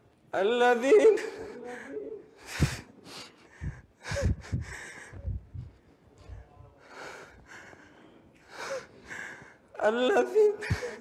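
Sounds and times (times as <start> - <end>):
man sniffing and sobbing: 1.5 - 5.5.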